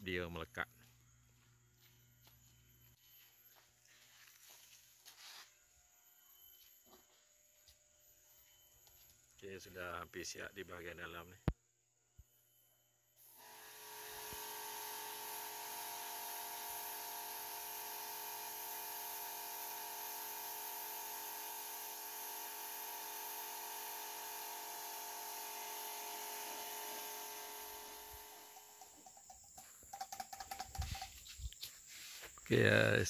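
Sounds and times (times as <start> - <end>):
pressure washer motor whine: 13.2 - 29.1.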